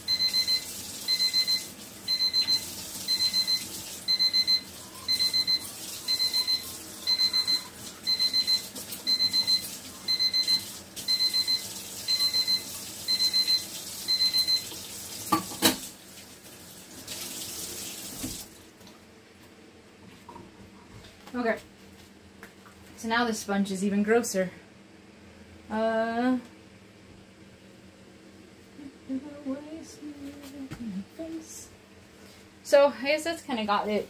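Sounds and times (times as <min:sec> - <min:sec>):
timer alarm beeping: 0:00.0 - 0:14.7
tap running into sink: 0:18.1 - 0:18.5.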